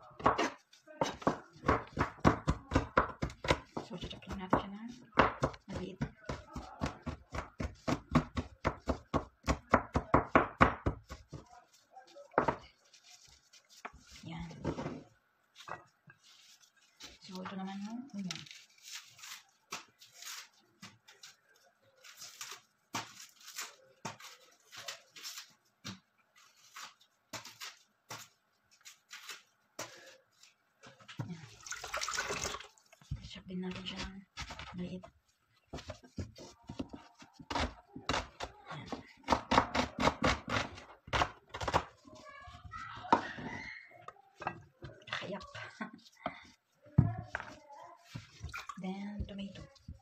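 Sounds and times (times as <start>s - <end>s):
papery onion rustles: 0.2s - 10.0s, 10.8s - 39.3s, 40.4s - 50.0s
knife chopping on cutting board: 0.2s - 11.5s, 35.7s - 42.0s.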